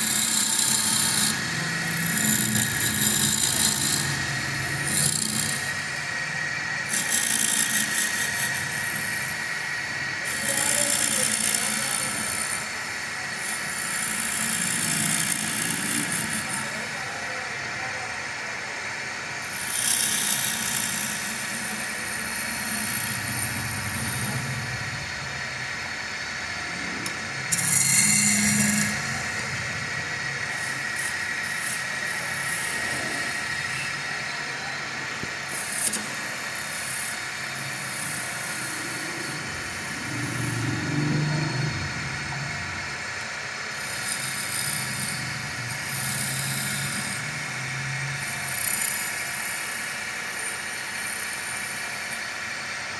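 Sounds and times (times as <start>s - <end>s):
wood lathe hum: 0.0s - 52.9s
chisel scraping hiss on wood: 6.9s - 9.1s, 10.3s - 12.6s, 13.4s - 16.8s, 19.5s - 23.4s, 27.0s - 29.2s.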